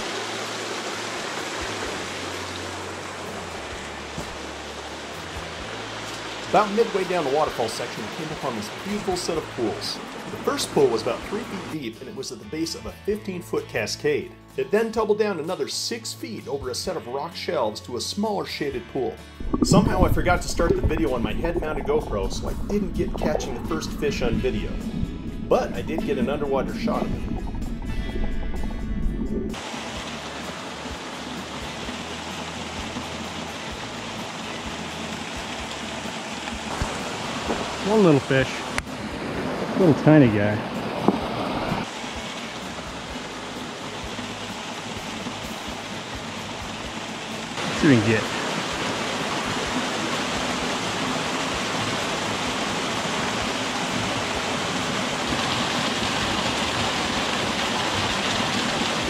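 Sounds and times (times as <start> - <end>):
creek cascading over rocks: 0.0 - 11.8, 19.4 - 27.9, 29.5 - 59.0
waterfall splashing into pool: 0.0 - 11.8, 19.4 - 27.2, 29.5 - 59.0
faint low bumps: 19.4 - 29.6.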